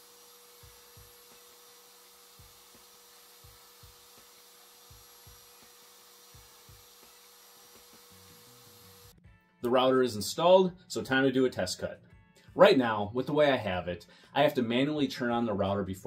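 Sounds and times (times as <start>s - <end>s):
trim router whining: 0.0s - 9.2s.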